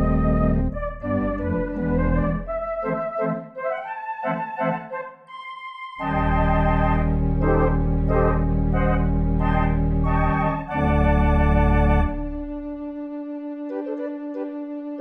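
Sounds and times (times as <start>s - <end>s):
organ music: 0.0s - 15.0s.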